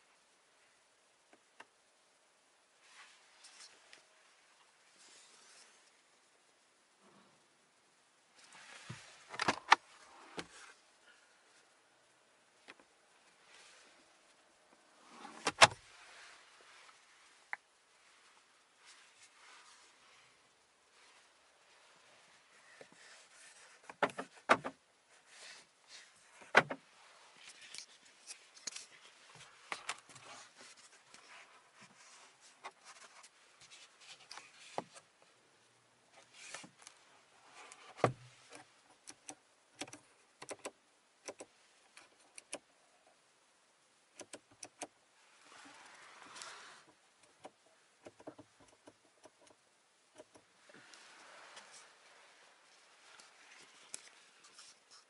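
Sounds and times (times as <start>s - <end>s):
soft hiss: 0.0s - 55.0s
clicks and knocks in car cabin: 24.0s - 24.8s, 26.5s - 26.8s.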